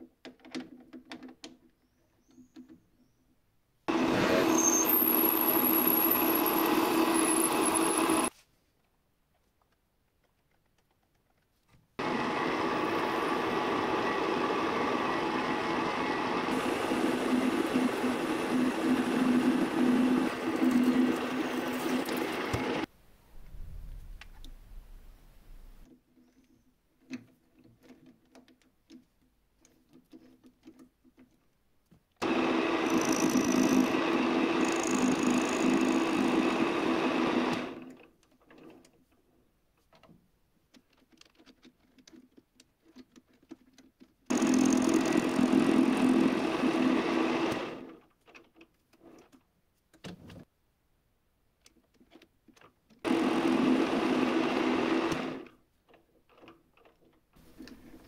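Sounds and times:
electric power tool motor: 3.9s - 8.3s, 12.0s - 22.9s, 32.2s - 37.9s, 44.3s - 47.9s, 53.1s - 55.5s.

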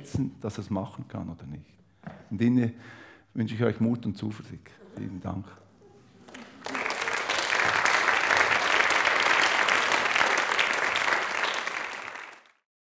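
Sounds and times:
audience applauding: 6.1s - 12.7s.

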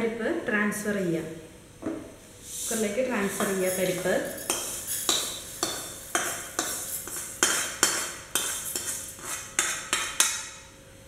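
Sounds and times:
metal spoon clinking on pan: 3.4s - 9.0s.

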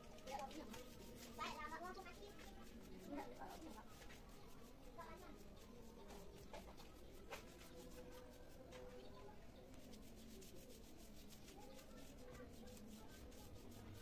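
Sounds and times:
foam brush rubbing on wood: 0.0s - 14.0s.

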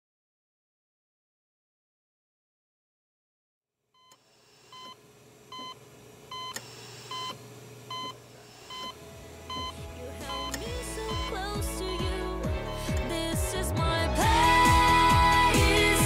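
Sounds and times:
medical monitor beeping: 4.0s - 13.0s
music: 9.0s - 16.0s.

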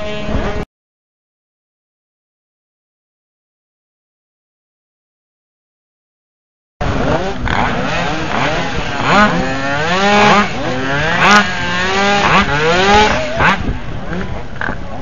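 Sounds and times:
two-stroke engine revving: 6.8s - 14.8s.

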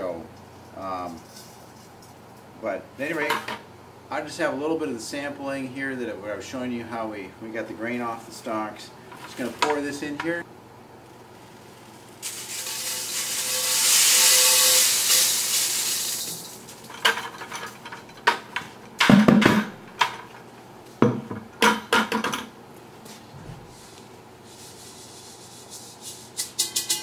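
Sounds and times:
grain pouring down metal duct: 11.1s - 17.8s.

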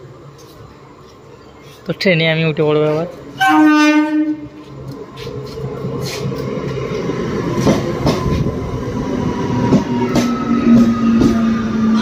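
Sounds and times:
electric train rumble: 0.0s - 12.0s
wheels clacking over rail joints: 4.8s - 12.0s.

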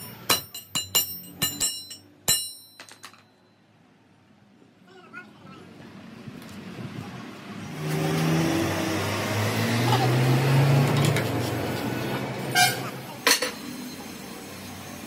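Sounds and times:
ringing metal clanks: 0.0s - 3.6s, 12.7s - 14.1s
rushing workshop noise: 7.8s - 15.0s
voices: 11.8s - 15.0s.

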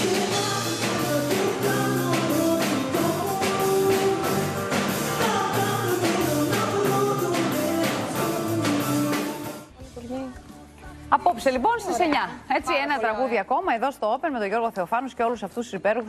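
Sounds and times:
steady beat: 0.0s - 10.6s
live band music: 0.0s - 11.1s
woman singing: 0.0s - 13.2s.

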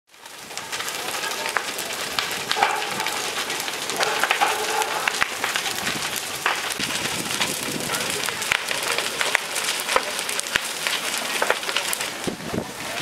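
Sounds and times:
fire crackling and popping: 0.1s - 13.0s.

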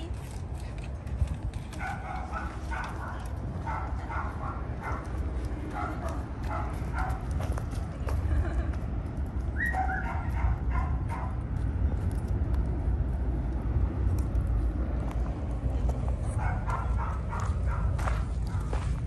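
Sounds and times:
footsteps on wood chips: 17.3s - 19.0s.

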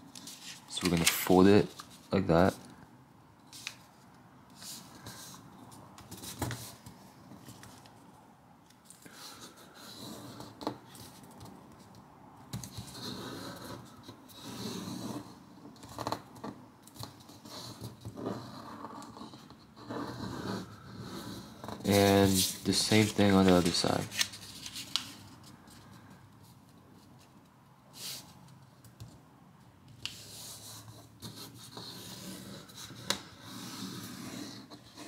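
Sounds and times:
paper rustling and scraping: 0.1s - 2.6s, 20.1s - 25.9s.

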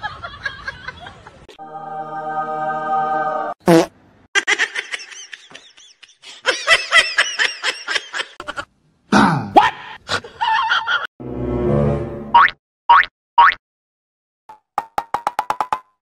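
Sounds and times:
person giggling: 4.4s - 8.7s.

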